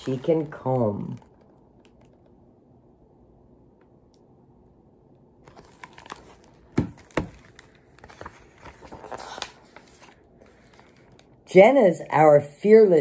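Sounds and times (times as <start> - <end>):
book page turning: 0.0 - 2.4, 5.4 - 11.4.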